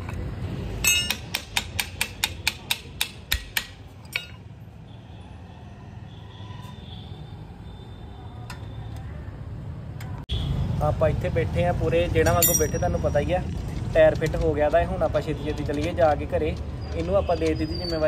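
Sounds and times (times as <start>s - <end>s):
sharp metallic taps: 0.8s - 4.4s.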